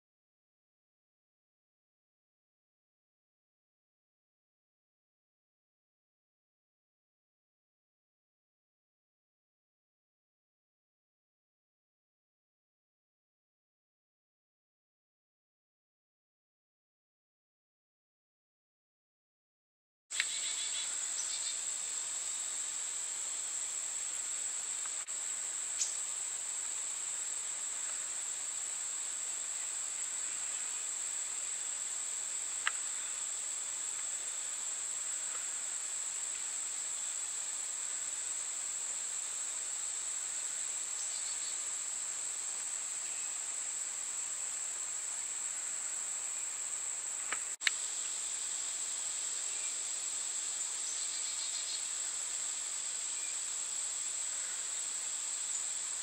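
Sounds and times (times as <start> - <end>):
insects chorus: 20.1 - 56.0.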